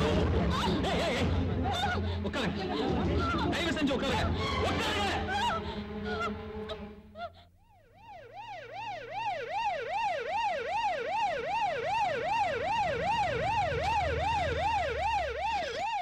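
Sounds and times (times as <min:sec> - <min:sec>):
police siren wailing: 0:03.4 - 0:06.8, 0:07.9 - 0:16.0.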